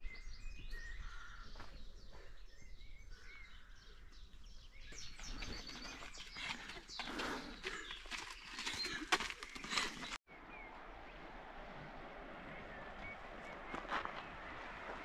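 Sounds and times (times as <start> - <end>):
small birds singing: 0.0 - 11.2
footsteps on dirt path: 1.1 - 2.7, 4.8 - 10.2, 12.7 - 15.0
low outdoor rumble: 10.3 - 15.0.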